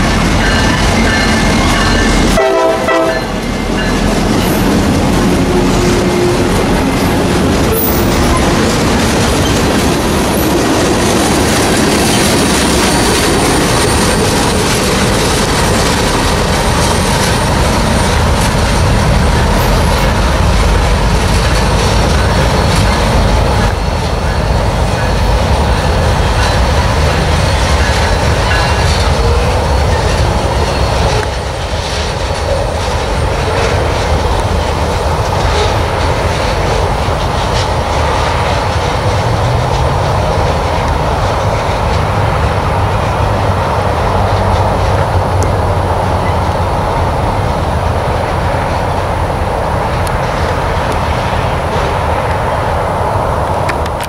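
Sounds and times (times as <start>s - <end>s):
train wheels rumbling on rails: 0.0s - 54.0s
high wheel squeal: 12.0s - 15.8s.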